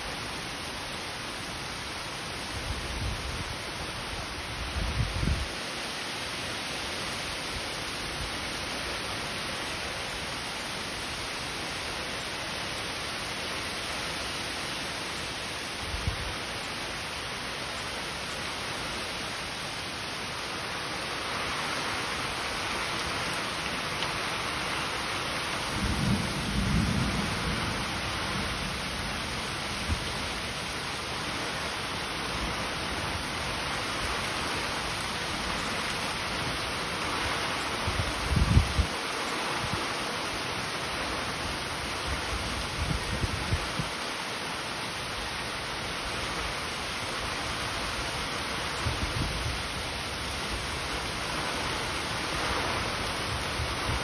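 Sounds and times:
heavy rain pouring: 0.0 - 54.0
low rumbles of thunder: 25.7 - 30.2.

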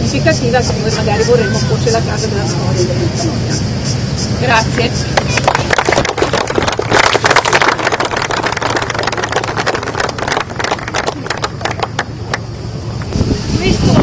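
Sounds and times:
low steady hum: 0.0 - 14.0
people clapping: 5.2 - 13.1.

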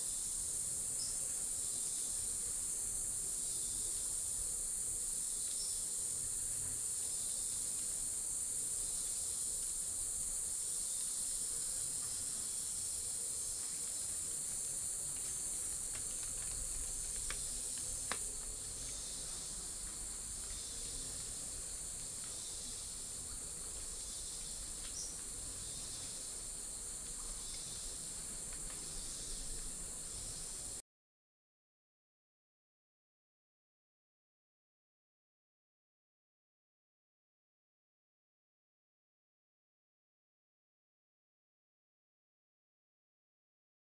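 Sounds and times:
low insect buzz: 0.0 - 30.8.

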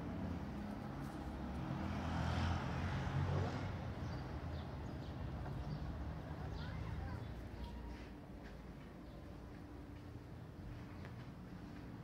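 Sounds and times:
street traffic rumble: 0.0 - 12.0
vehicle passing: 0.1 - 4.1.

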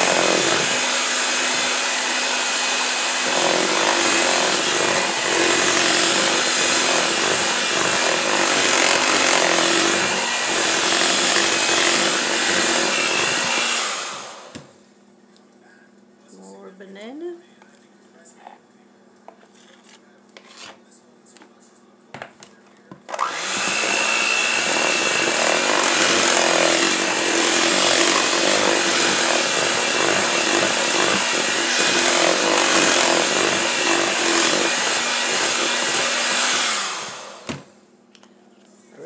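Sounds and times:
electric hand mixer running: 0.0 - 14.6, 23.1 - 37.7.

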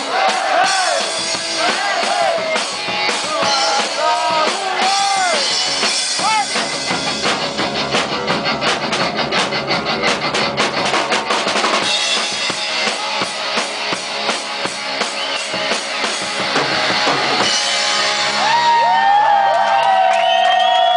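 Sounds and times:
drum kit beats: 0.0 - 20.9
electric guitar: 5.2 - 20.0.

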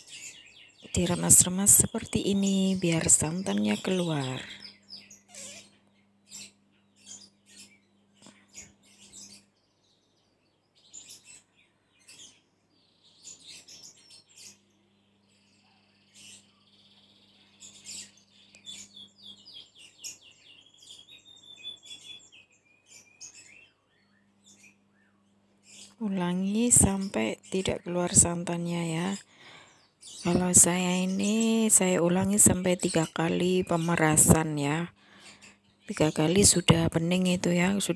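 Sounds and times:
bird chirping: 0.0 - 37.9.

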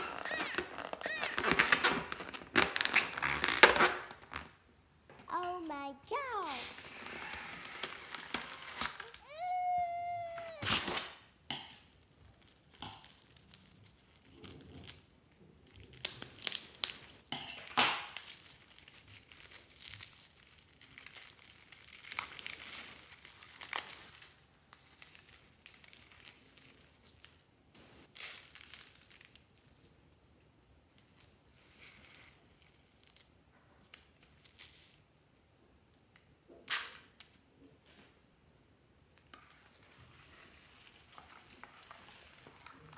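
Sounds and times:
balloon crinkling and crackling: 0.0 - 11.1, 11.8 - 30.2, 39.2 - 42.9.

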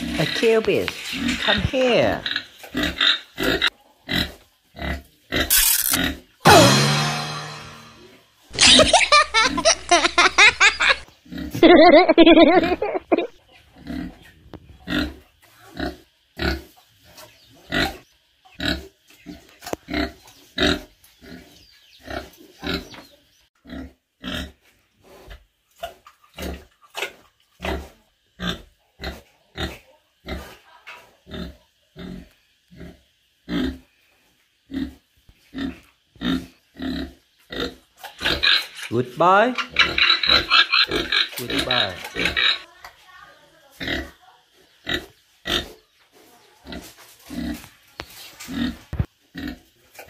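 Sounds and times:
pig grunting: 31.2 - 33.8, 34.7 - 42.7.

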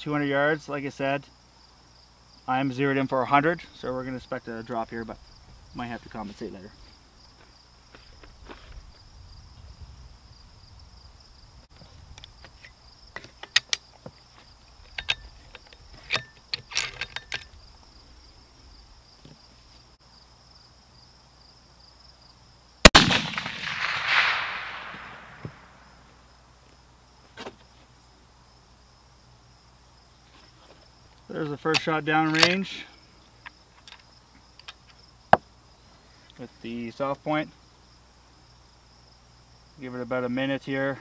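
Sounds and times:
crickets chirring: 0.0 - 41.0
rifle shot: 22.8 - 25.8.

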